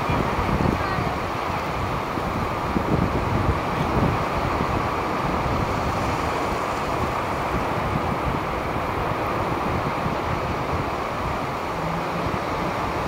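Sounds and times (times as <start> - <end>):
waves breaking on beach: 0.0 - 13.0
wind buffeting microphone: 0.0 - 13.0.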